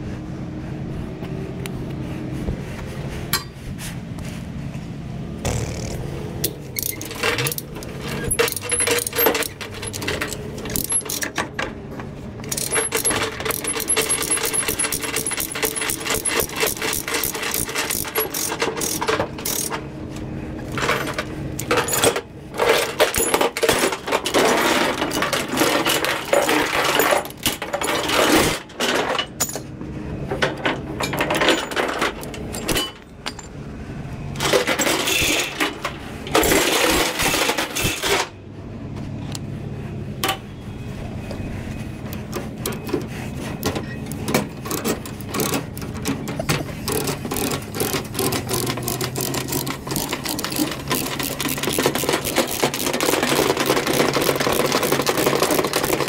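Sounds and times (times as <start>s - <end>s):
low engine hum: 0.0s - 6.8s
chain binder clicking: 6.4s - 11.5s, 12.4s - 19.8s, 44.1s - 56.0s
chain links clinking: 6.8s - 11.4s, 12.4s - 19.8s.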